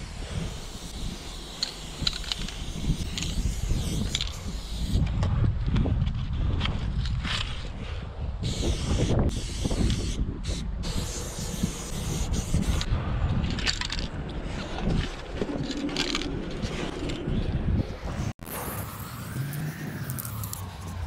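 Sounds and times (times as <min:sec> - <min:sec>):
spray paint cans hissing: 0:00.0 - 0:05.1, 0:08.4 - 0:12.9, 0:18.1 - 0:21.0.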